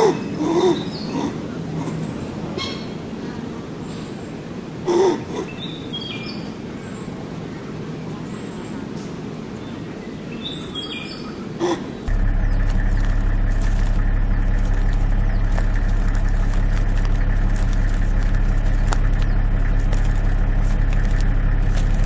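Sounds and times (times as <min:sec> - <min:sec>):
vehicle engine idling: 0:12.0 - 0:22.0.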